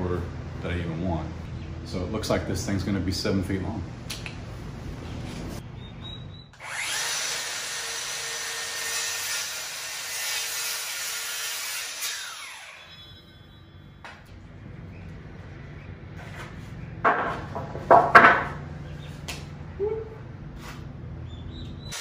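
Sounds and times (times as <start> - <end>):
circular saw cutting wood: 6.6 - 13.5.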